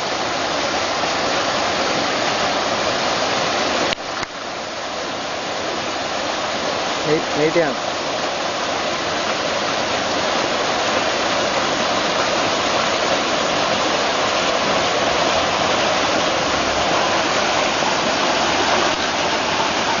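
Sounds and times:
waterfall pouring into pond: 0:00.0 - 0:20.0.

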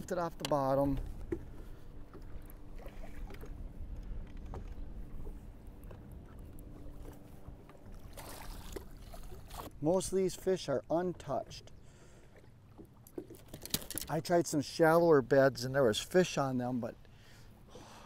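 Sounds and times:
low wind rumble: 0:00.0 - 0:10.3
water lapping against boat: 0:00.0 - 0:18.0.

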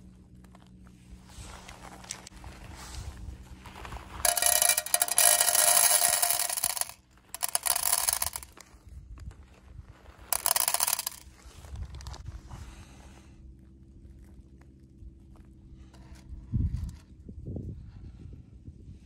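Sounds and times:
kernels rattling into metal tin: 0:04.2 - 0:08.6, 0:10.3 - 0:11.2.

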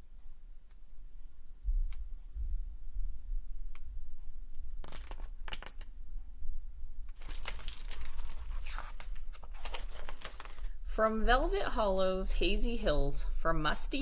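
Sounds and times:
steady low hum: 0:00.0 - 0:04.8
paper rustling: 0:04.8 - 0:05.9, 0:07.2 - 0:10.8.

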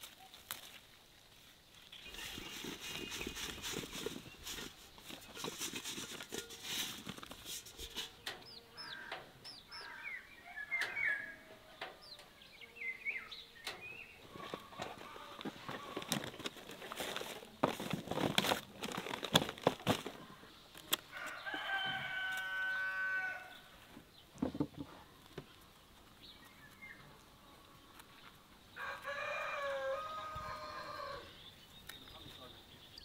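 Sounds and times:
clicks and rustling: 0:02.5 - 0:08.5, 0:13.6 - 0:21.0
rooster crowing: 0:21.1 - 0:23.7, 0:28.8 - 0:31.4.

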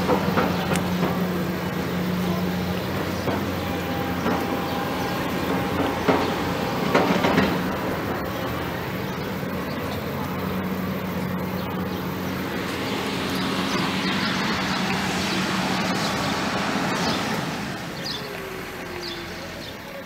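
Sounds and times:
passing vehicle rumble: 0:00.0 - 0:20.0.

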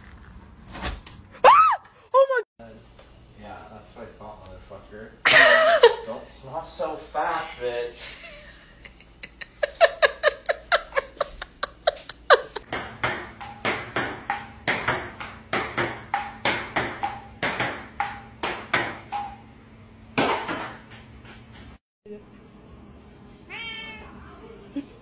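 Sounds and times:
table tennis ball bouncing: 0:12.6 - 0:19.5, 0:20.2 - 0:21.8.

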